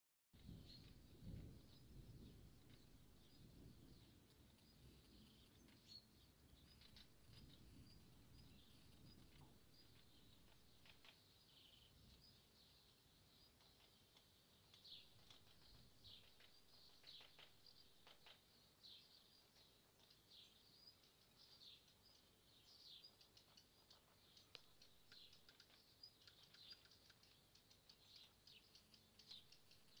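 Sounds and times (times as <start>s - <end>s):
small birds chirping: 0.4s - 30.0s
light ticks: 8.9s - 11.2s, 13.4s - 18.5s, 19.3s - 30.0s.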